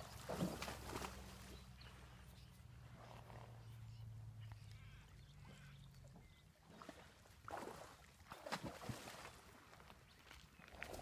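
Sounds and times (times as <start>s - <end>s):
horse splashing in water: 0.0s - 1.8s, 6.6s - 9.8s.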